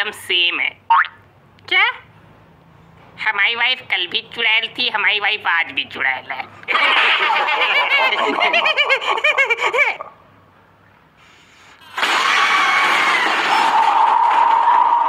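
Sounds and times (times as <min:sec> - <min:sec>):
person laughing: 0:06.7 - 0:10.1.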